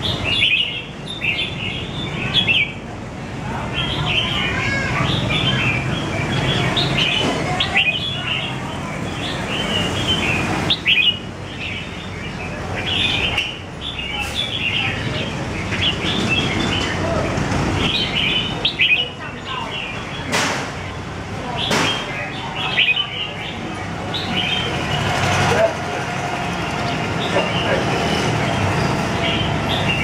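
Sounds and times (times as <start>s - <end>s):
bird chirping: 0.0s - 2.8s, 5.0s - 17.0s, 17.8s - 25.2s.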